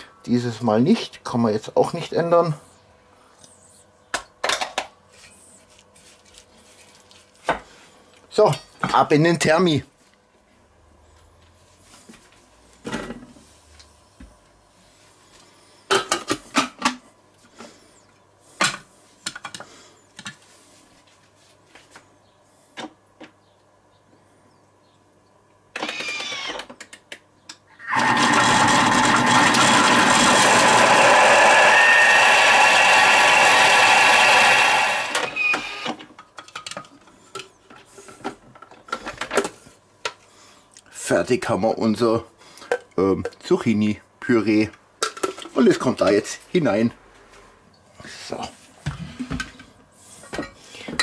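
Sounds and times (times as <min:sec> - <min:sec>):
kitchen blender motor whining: 0:27.8 - 0:36.0.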